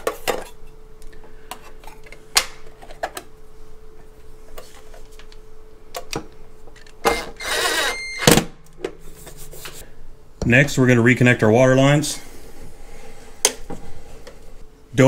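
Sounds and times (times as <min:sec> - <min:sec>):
cordless drill driving screw: 0:07.1 - 0:08.0.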